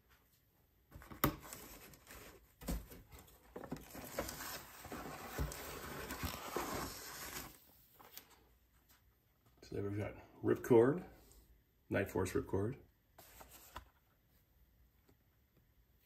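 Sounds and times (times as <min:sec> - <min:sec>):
cardboard packaging rustling: 0:00.9 - 0:08.4, 0:13.2 - 0:14.0.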